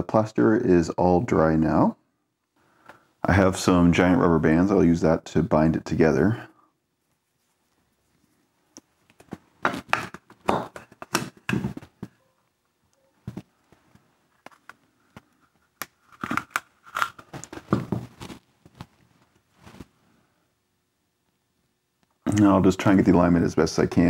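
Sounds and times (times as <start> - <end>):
rubber bands rubbing and scraping: 7.1 - 12.2, 13.2 - 20.0.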